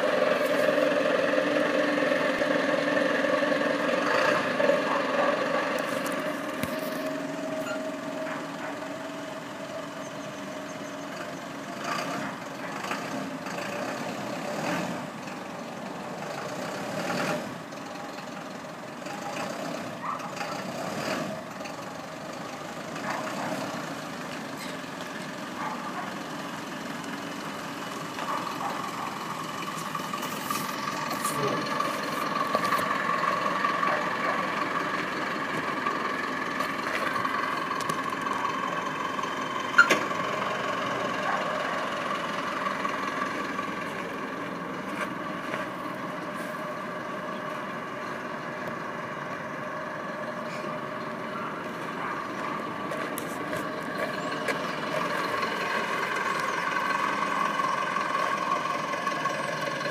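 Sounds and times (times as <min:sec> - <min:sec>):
truck engine idling: 0:00.0 - 0:59.9.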